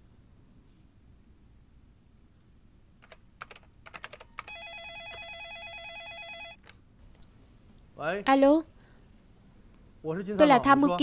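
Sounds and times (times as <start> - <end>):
computer keyboard typing: 3.0 - 6.8
telephone electronic trill ringing: 4.4 - 6.6.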